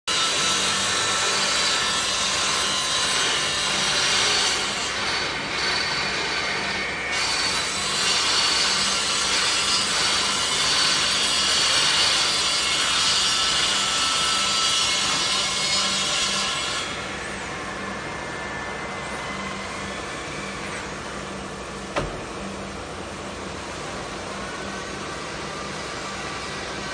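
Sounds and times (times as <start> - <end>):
saw blade cutting wood: 0.1 - 17.2
low machine hum: 16.8 - 26.9.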